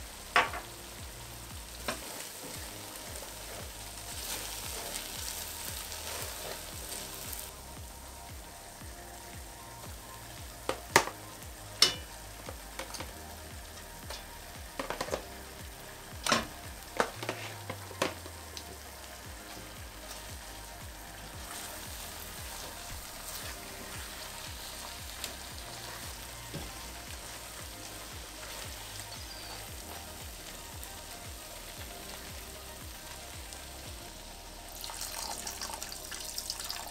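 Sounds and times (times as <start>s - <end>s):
gravy sizzling in a pot: 0.0s - 36.9s
knocks and clinks against pot: 11.8s - 12.1s.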